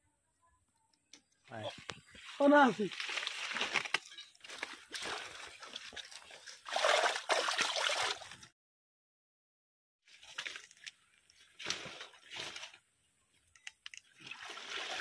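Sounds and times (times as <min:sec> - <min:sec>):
pond water sloshing and splashing: 0:02.2 - 0:08.5, 0:14.0 - 0:15.0
small clicks: 0:13.4 - 0:14.1.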